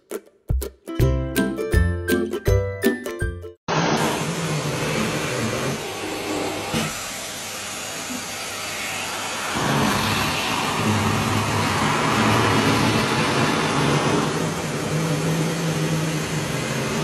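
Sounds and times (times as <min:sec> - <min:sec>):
music: 0:00.0 - 0:03.6
vacuum cleaner hiss and hum: 0:03.7 - 0:17.0.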